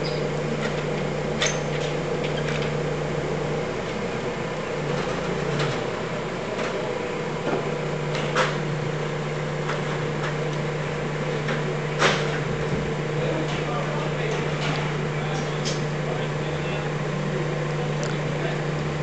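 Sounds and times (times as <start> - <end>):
crane engine humming: 0.0 - 19.0.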